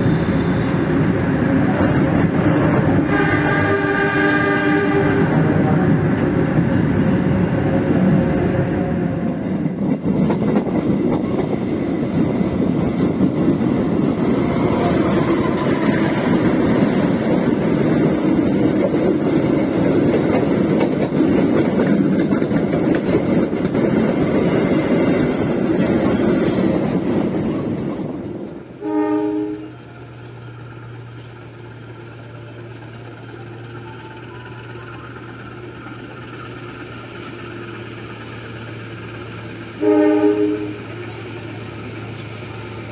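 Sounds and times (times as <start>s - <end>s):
train rushing rumble: 0.0s - 42.9s
train horn blast: 2.7s - 5.5s, 28.7s - 29.9s, 39.7s - 41.2s
diesel locomotive idling hum: 27.6s - 42.9s.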